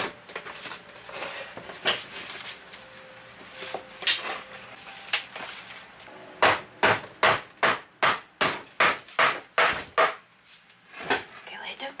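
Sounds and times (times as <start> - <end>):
hammer knocking on wood: 6.4 - 10.2.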